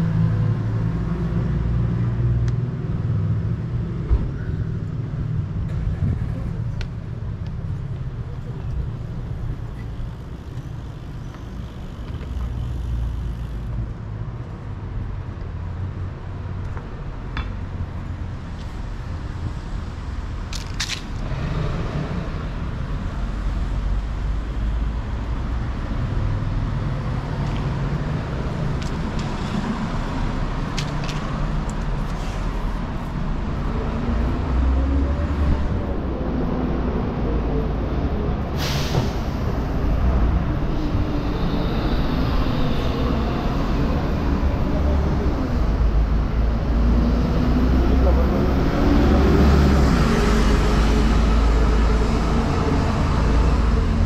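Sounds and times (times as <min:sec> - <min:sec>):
traffic passing close by: 0:00.0 - 0:54.0
short sharp hiss: 0:38.6 - 0:39.5.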